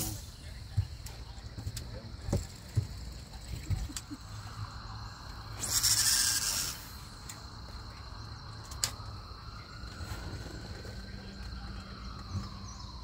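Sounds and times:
fishing reel whirring buzz: 0:05.6 - 0:06.9.

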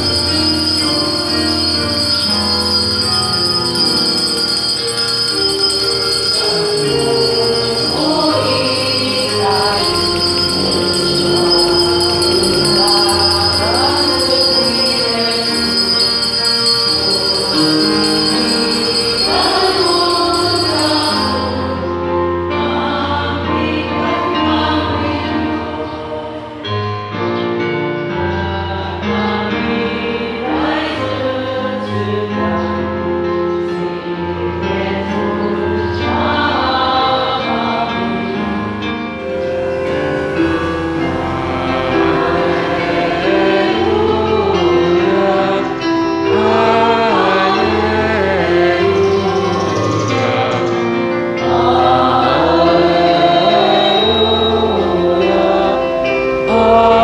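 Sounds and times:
jingling percussion: 0:00.0 - 0:22.1, 0:39.2 - 0:57.0
choir singing a hymn: 0:00.0 - 0:57.0
instrumental accompaniment: 0:00.0 - 0:57.0.

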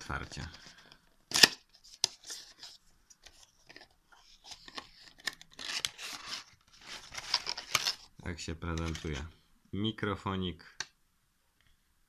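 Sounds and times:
packaging rustling: 0:00.3 - 0:08.1
cardboard and plastic clicks and scrapes: 0:00.4 - 0:08.1.

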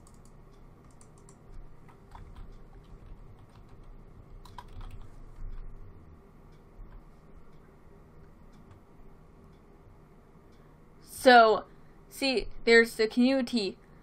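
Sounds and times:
keyboard keystrokes and mouse clicks: 0:00.0 - 0:05.8, 0:08.2 - 0:08.9
low steady hum: 0:00.0 - 0:14.0.

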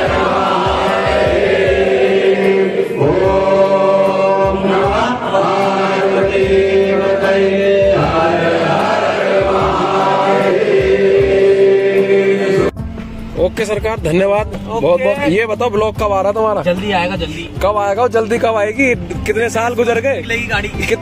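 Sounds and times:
crowd singing a hymn: 0:00.0 - 0:12.8.

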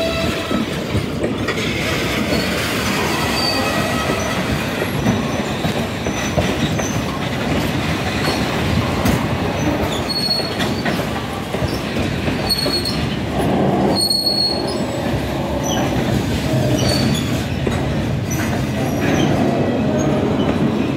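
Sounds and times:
train wheels clacking over rail joints: 0:00.0 - 0:20.9
high-pitched wheel squeals: 0:02.3 - 0:04.5.

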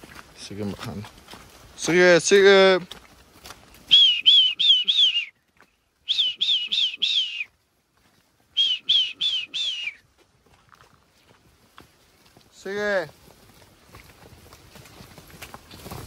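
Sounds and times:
person whistling short notes: 0:03.9 - 0:05.4, 0:06.1 - 0:07.5, 0:08.5 - 0:10.0.

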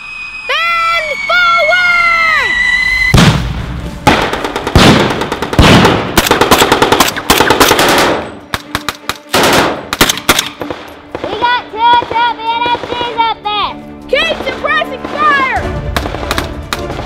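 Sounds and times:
machine-gun fire: 0:04.1 - 0:13.2.

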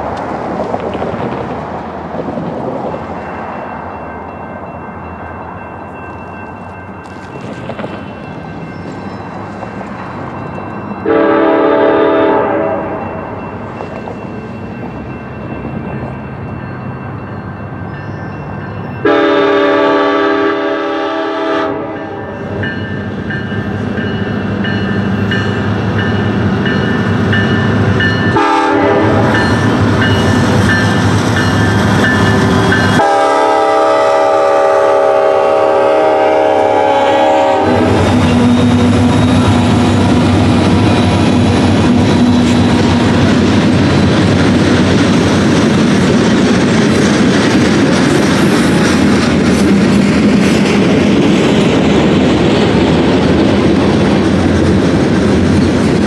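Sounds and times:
locomotive rumble: 0:00.0 - 0:56.0
train air horn blasts: 0:11.0 - 0:13.1, 0:19.0 - 0:22.3, 0:28.3 - 0:29.6, 0:32.9 - 0:38.1.

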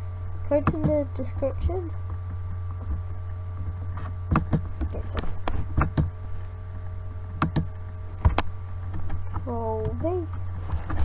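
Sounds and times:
low electrical hum: 0:00.0 - 0:11.0
computer mouse clicks: 0:07.4 - 0:07.7.

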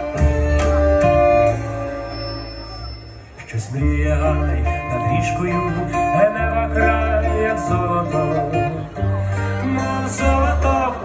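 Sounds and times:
amplified acoustic guitar: 0:00.0 - 0:11.0
deep sustained bass notes: 0:00.0 - 0:11.0
person singing: 0:03.5 - 0:11.0.

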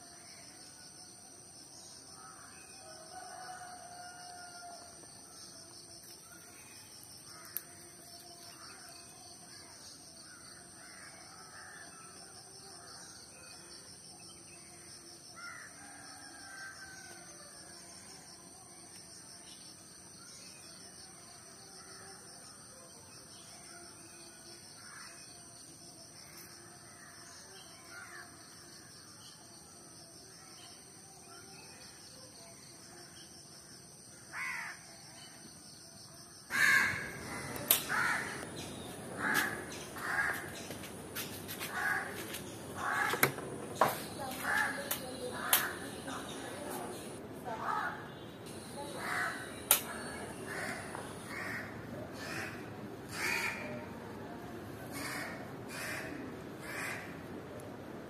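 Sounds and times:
faint crows cawing: 0:07.2 - 0:07.8, 0:15.4 - 0:16.8, 0:34.3 - 0:34.9, 0:36.5 - 0:46.1, 0:47.6 - 0:54.0, 0:54.9 - 0:57.3.

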